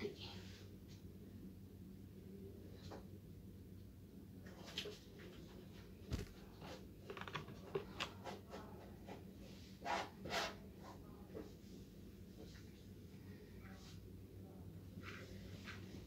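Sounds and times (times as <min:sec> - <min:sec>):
fabric rustling: 0:06.1 - 0:06.5.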